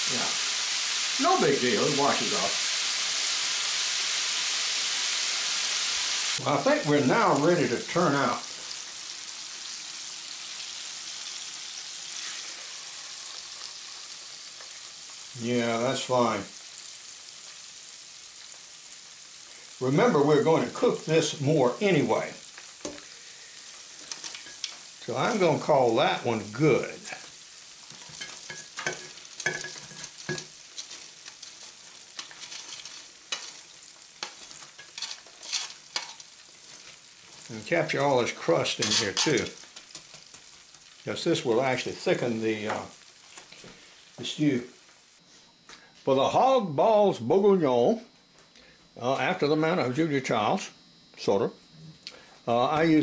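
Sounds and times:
oil sizzling in deep fryer: 0:00.0 - 0:51.2
metal spatula scraping basket: 0:28.0 - 0:37.5, 0:38.7 - 0:39.5.

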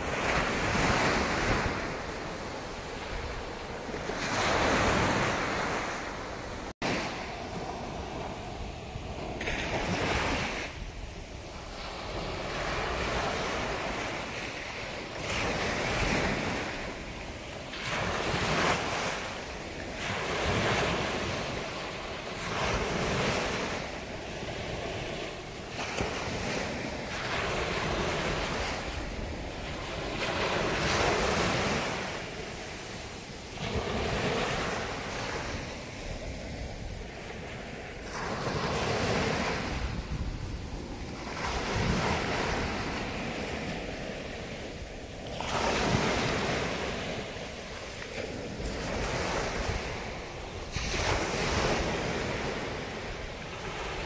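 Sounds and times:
ocean surf breaking on beach: 0:00.0 - 0:54.0
wind buffeting microphone: 0:00.0 - 0:54.0.

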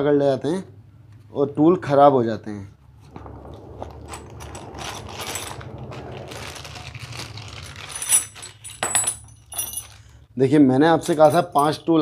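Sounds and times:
metal tools clinking: 0:03.3 - 0:10.2, 0:11.0 - 0:12.0
plastic packet crinkling: 0:04.8 - 0:08.6.

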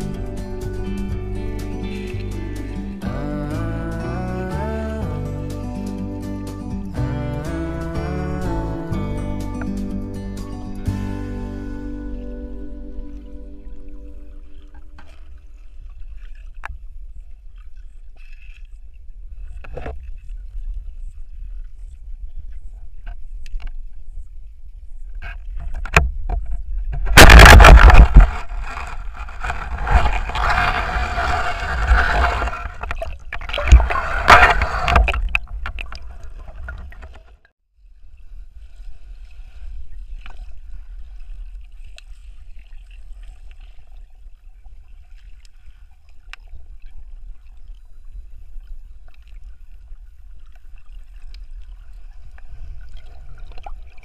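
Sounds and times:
faint low rumble: 0:00.0 - 0:37.2
underwater rush of water: 0:25.6 - 0:37.5, 0:38.4 - 0:54.0.

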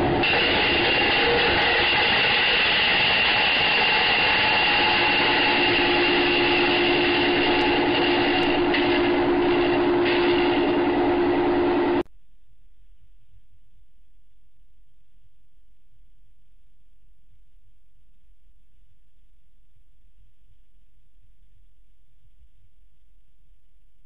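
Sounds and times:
mechanical rumble with whining: 0:00.0 - 0:12.0.

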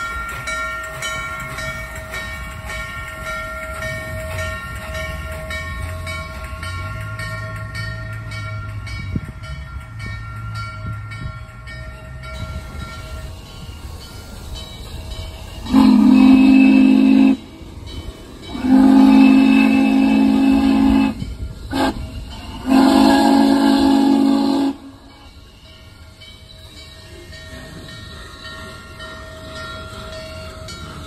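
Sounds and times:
deep steam whistle blasts: 0:15.6 - 0:17.7, 0:18.4 - 0:25.3.

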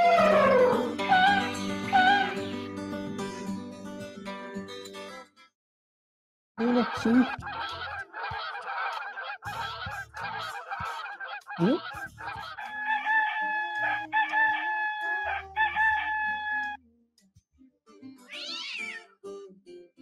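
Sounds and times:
chicken cackling: 0:00.0 - 0:02.5, 0:06.6 - 0:16.8.

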